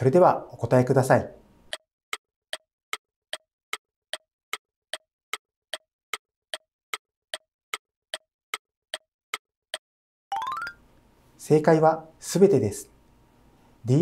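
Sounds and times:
countdown timer ticking: 6.5s - 10.8s.

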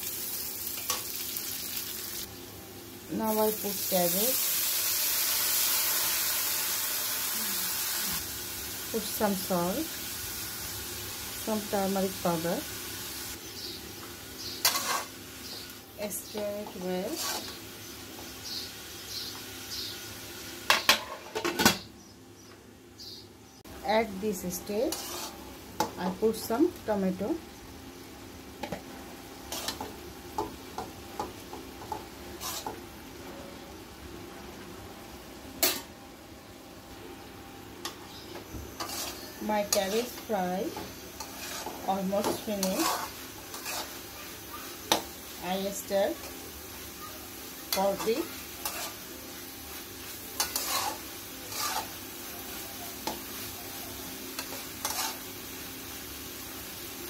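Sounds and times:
food frying sizzle: 0.0s - 21.6s, 23.6s - 36.0s, 36.8s - 57.0s
spatula scraping metal pan: 14.6s - 15.1s, 17.1s - 17.6s, 24.9s - 25.4s, 32.4s - 32.8s, 38.8s - 40.0s, 40.7s - 44.0s, 47.8s - 49.0s, 50.4s - 51.9s, 54.4s - 55.2s.

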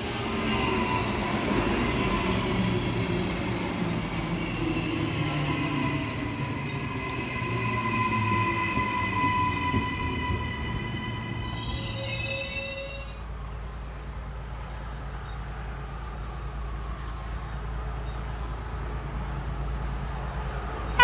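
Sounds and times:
train rumbling past: 0.0s - 21.0s
high-pitched squeal: 0.2s - 13.2s.

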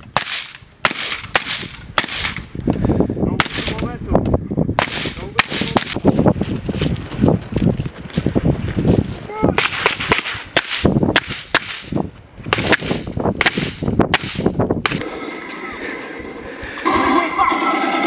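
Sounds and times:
rifle shots with echo: 3.4s - 3.8s, 12.5s - 15.0s.

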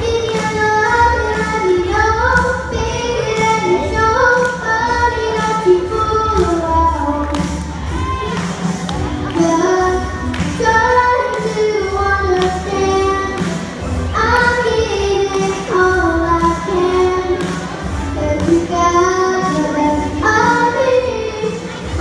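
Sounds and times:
girl singing into a microphone: 0.0s - 8.4s, 9.2s - 22.0s
backing music: 0.0s - 22.0s.

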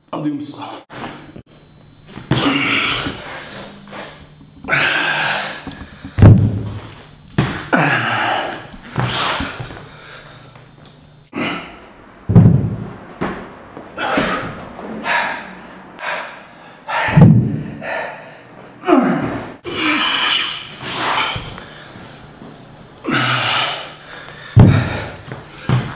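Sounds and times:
man exhaling and grunting: 2.3s - 3.7s, 4.6s - 6.2s, 7.6s - 9.7s, 11.3s - 11.9s, 14.0s - 21.6s, 23.0s - 25.9s
dumbbells thudding on floor: 5.6s - 7.7s, 12.3s - 13.5s, 17.1s - 17.7s, 24.6s - 25.9s.

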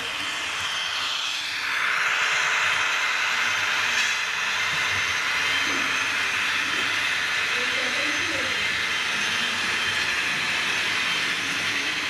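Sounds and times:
model train wheels whirring on rails: 0.0s - 12.0s.

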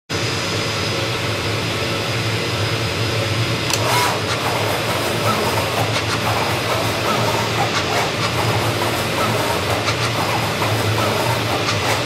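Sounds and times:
cutting machine hiss: 3.7s - 12.0s
machine clicks: 3.7s - 12.0s.

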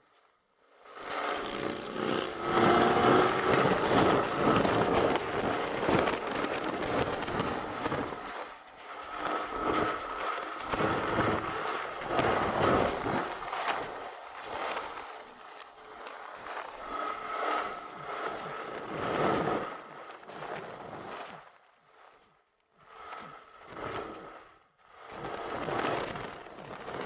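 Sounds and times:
motorcycle engine: 0.7s - 14.9s
wind rushing over microphone: 0.8s - 22.0s, 22.8s - 27.0s.

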